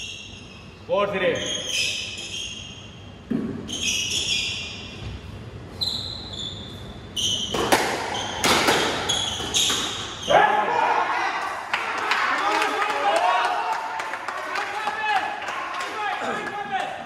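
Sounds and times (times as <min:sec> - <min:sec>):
squash ball hits: 0:03.3 - 0:03.7, 0:07.5 - 0:10.2.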